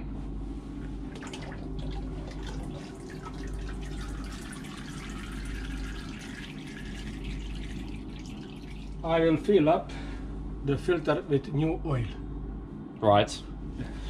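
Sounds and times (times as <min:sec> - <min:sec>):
low machinery hum: 0:00.0 - 0:14.0
oil trickling into a plastic bucket: 0:01.2 - 0:09.0.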